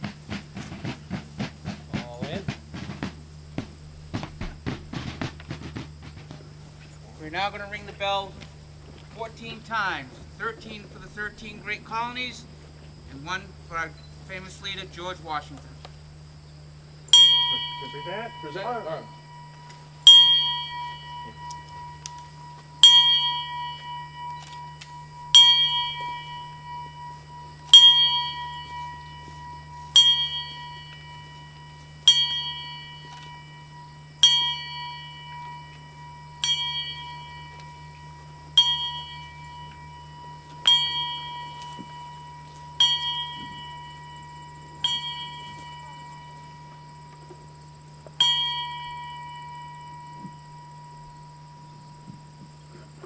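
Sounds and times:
small brass bell tolling: 17.1s - 53.0s.

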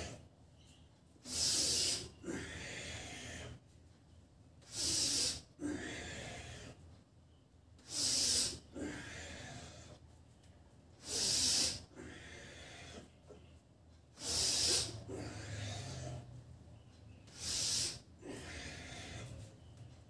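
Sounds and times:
man breathing forcefully: 1.2s - 3.6s, 4.6s - 6.8s, 7.8s - 10.0s, 11.0s - 13.1s, 14.2s - 16.3s, 17.3s - 19.6s.

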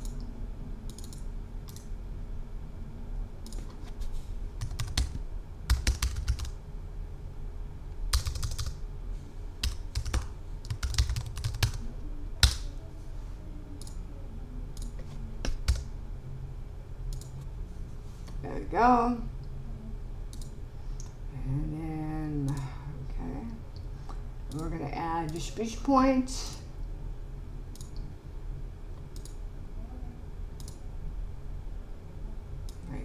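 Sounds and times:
typing on keyboard: 4.6s - 6.6s, 8.1s - 8.8s, 9.6s - 11.8s, 14.8s - 15.9s.

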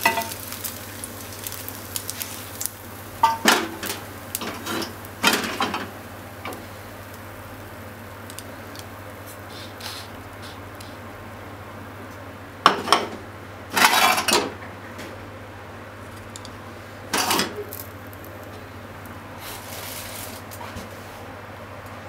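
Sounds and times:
pan clattering on stove grate: 0.0s - 0.4s, 3.2s - 6.6s, 12.7s - 14.6s
chopsticks scraping frying pan: 0.0s - 0.5s, 13.7s - 14.4s.

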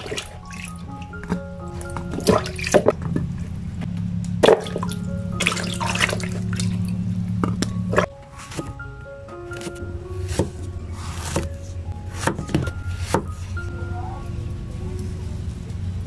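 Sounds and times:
soft background music: 0.0s - 16.0s
steady low hum: 0.0s - 16.0s
hands splashing in water: 1.8s - 2.9s.

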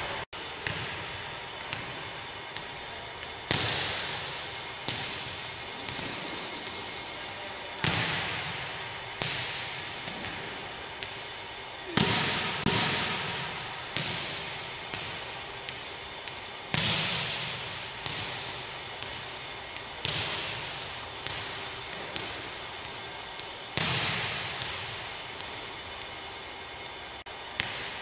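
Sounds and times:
volleyball smacks echoing: 7.8s - 11.2s, 11.9s - 25.7s.

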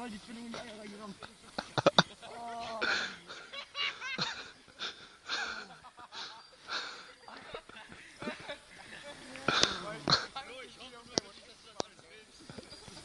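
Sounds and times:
person laughing: 1.6s - 10.3s.

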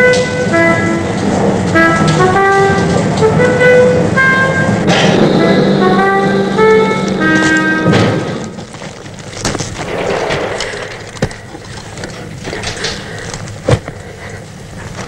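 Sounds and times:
music chord: 0.0s - 8.6s
coal and rock knocking and crumbling: 7.9s - 15.0s.

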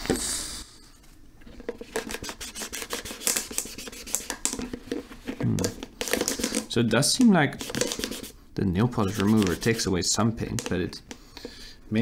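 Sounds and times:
scratching on plastic bucket: 9.0s - 10.0s.

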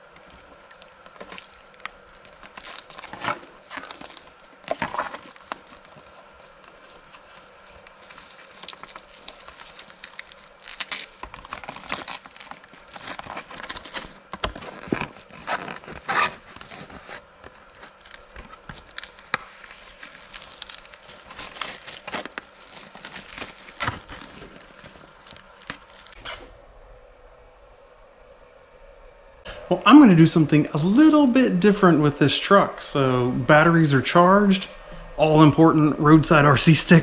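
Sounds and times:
plastic film crinkling: 0.0s - 26.2s.

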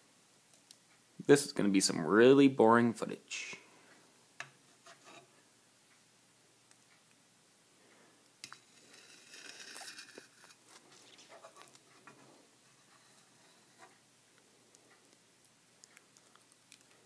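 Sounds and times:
metal spoon scraping milk pan: 4.7s - 5.3s, 8.4s - 13.9s.

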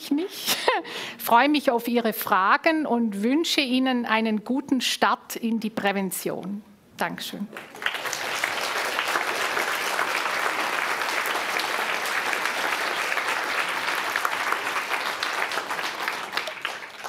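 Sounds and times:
audience applauding: 7.5s - 17.0s.

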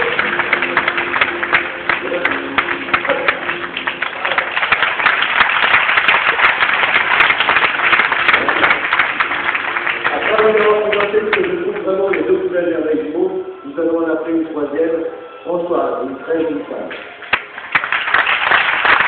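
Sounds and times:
audience applauding: 0.0s - 12.3s, 17.2s - 19.0s.

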